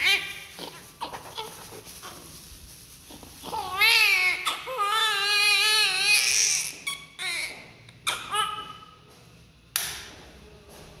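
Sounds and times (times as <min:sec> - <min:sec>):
newborn baby crying: 0:03.4 - 0:08.9.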